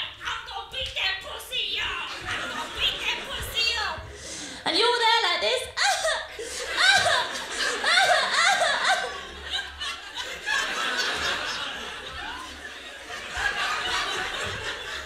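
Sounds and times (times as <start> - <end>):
audience laughing: 2.1 - 4.2, 5.8 - 15.0.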